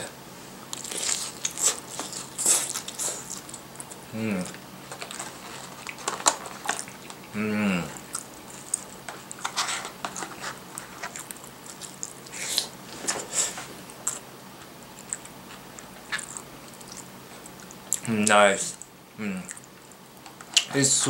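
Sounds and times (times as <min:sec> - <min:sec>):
chewing food: 0:00.6 - 0:20.8
person humming: 0:04.1 - 0:04.5, 0:07.3 - 0:08.0, 0:19.2 - 0:19.5.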